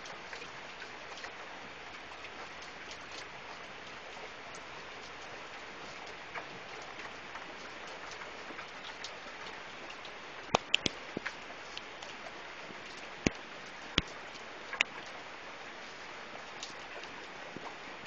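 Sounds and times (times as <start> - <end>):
steady rain hiss: 0.0 - 18.0
drip clicks: 9.9 - 11.9
sharp taps: 10.5 - 10.9.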